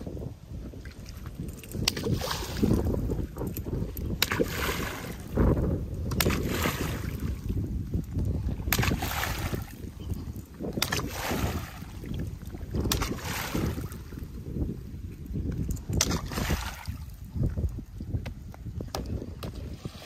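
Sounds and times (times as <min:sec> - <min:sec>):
wind rumble on microphone: 0:00.0 - 0:20.0
pole splashing pond water: 0:00.8 - 0:07.7, 0:08.3 - 0:09.9, 0:10.6 - 0:14.3, 0:15.8 - 0:17.3.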